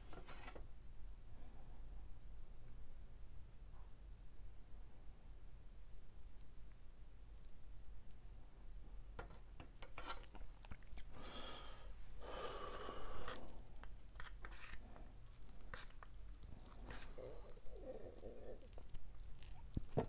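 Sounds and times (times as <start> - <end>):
fork scraping noodle cup: 14.2 - 18.6.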